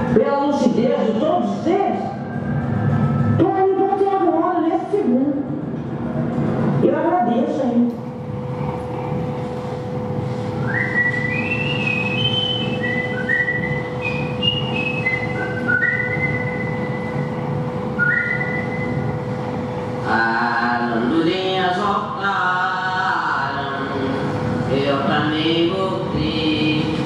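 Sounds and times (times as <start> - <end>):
steady hum: 0.0 - 27.0
person whistling slow melody: 10.6 - 17.2, 18.0 - 19.0.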